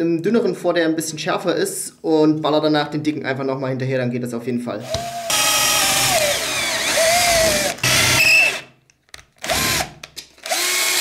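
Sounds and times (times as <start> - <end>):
cordless drill whining: 4.8 - 8.7, 9.4 - 11.0.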